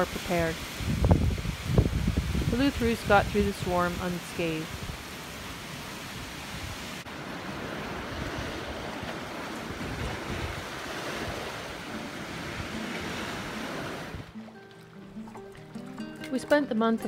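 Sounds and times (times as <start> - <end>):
wind buffeting microphone: 0.0 - 5.1, 6.1 - 14.4
waves on choppy water: 0.0 - 16.6
wind rushing: 0.6 - 3.8, 7.8 - 14.4.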